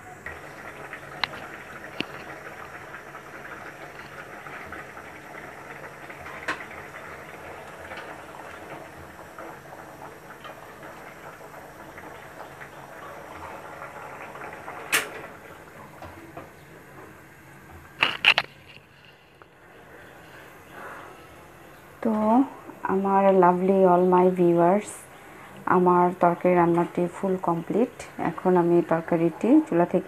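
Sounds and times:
curry bubbling in a pot: 0.2s - 17.3s.

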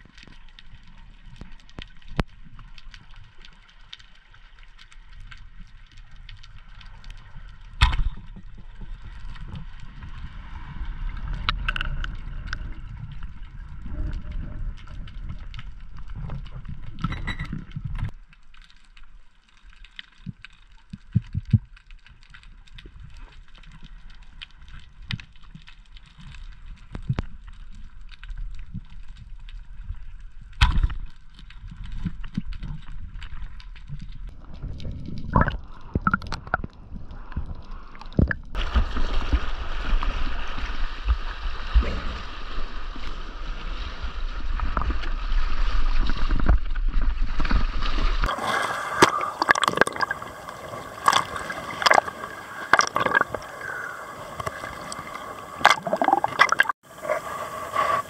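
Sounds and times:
muffled underwater rumble: 0.0s - 18.2s
small clicks and crackles: 0.0s - 48.3s.

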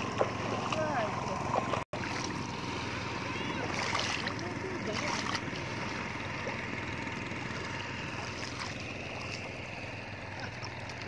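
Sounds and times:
rushing water: 0.0s - 2.5s, 3.1s - 6.1s
feet splashing through water: 0.0s - 6.6s, 8.0s - 11.0s.

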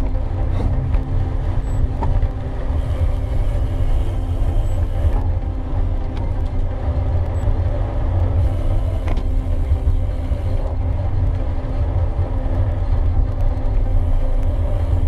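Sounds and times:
bicycle tyre hum: 0.0s - 15.0s
wind buffeting microphone: 0.0s - 15.0s.

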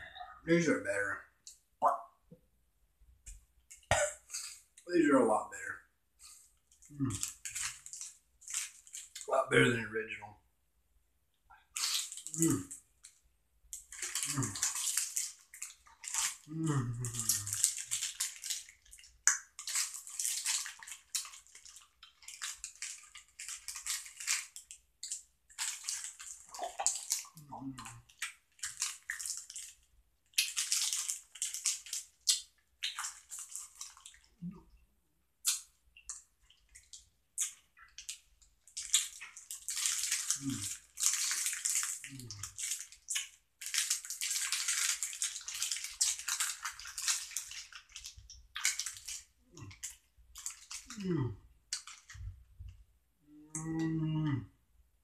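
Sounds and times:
plastic bag crinkling: 7.2s - 9.3s, 13.8s - 27.4s, 28.0s - 29.8s, 30.4s - 32.2s, 32.9s - 34.3s, 38.0s - 50.9s
brief low vocal sounds: 16.5s - 17.5s, 51.0s - 51.4s, 53.3s - 54.6s.

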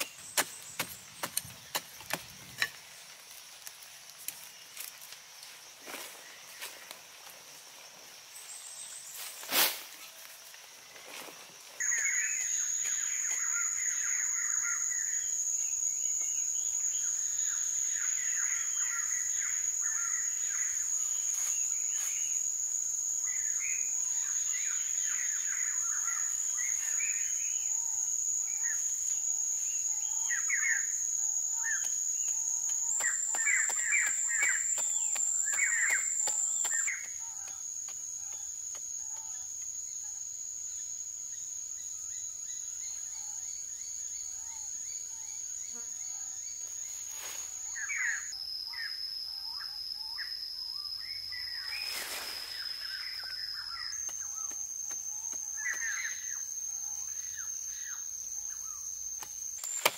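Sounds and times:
high-pitched insect drone: 4.3s - 59.9s
birds chirping: 31.6s - 37.6s.

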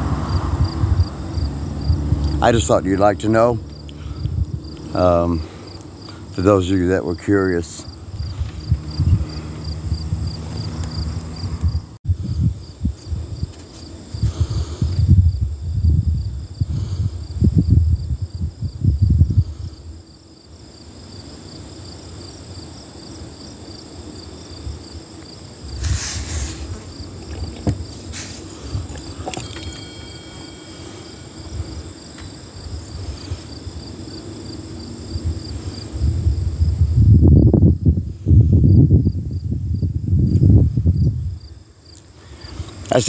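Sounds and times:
low rumbling on microphone: 0.0s - 2.8s, 7.8s - 13.5s, 14.2s - 20.0s, 35.2s - 41.5s
insects chirping: 0.0s - 43.0s.

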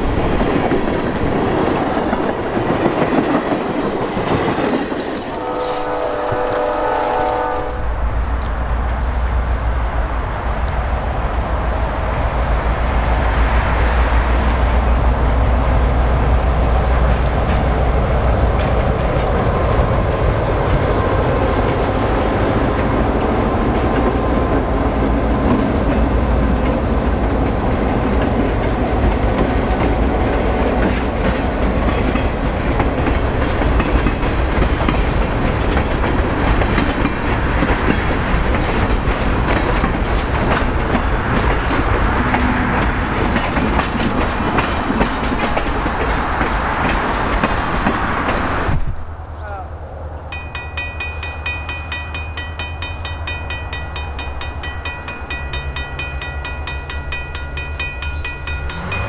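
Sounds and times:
train wheels on rail: 0.0s - 49.2s, 50.2s - 59.0s
sharp rail clicks: 13.6s - 21.8s, 28.1s - 49.0s, 50.3s - 59.0s.

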